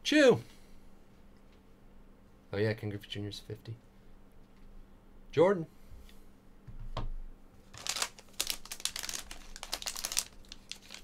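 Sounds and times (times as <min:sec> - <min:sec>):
foil pack crinkling and tearing: 0:07.7 - 0:11.0.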